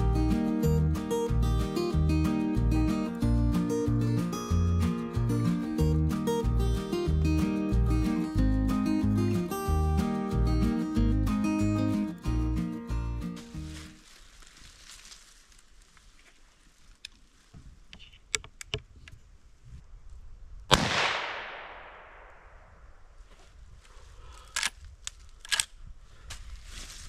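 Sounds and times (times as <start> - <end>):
rifle shot with echo: 20.7 - 22.8.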